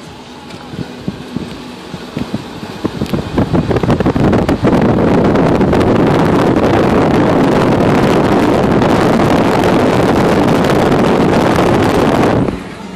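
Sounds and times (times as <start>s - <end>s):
wind rushing through car window: 0.0s - 12.9s.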